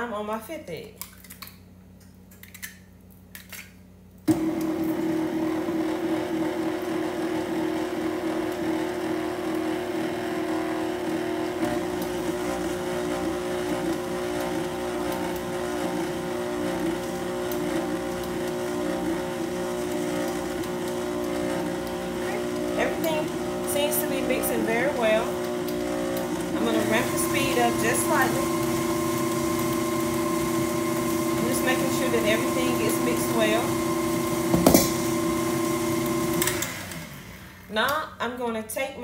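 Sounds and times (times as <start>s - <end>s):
electric mixer running: 4.3s - 37.8s.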